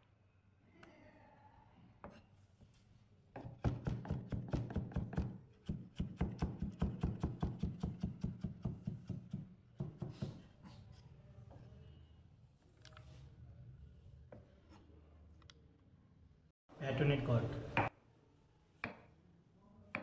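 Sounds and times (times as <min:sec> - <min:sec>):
knife chopping on plastic board: 0:03.4 - 0:10.4.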